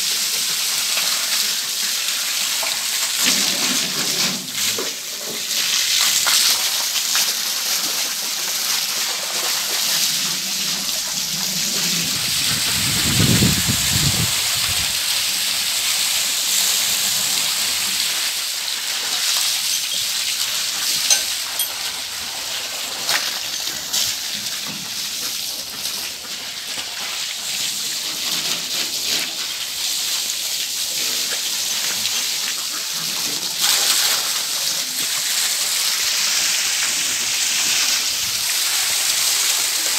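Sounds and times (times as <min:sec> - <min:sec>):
water splashing on wet ground: 0:00.0 - 0:39.9
hose water jetting onto metal: 0:16.8 - 0:25.1.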